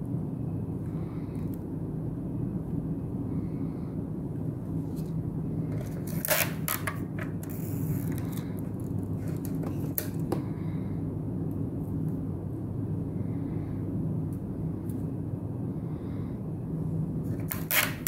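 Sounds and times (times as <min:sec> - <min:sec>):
low background rumble: 0:00.0 - 0:17.8
adhesive tape tearing: 0:06.0 - 0:08.4, 0:17.4 - 0:18.0.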